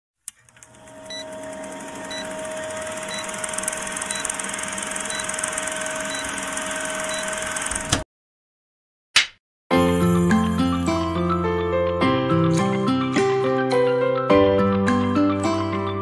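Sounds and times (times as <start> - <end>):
film projector whirring rattle: 0.3 - 8.0.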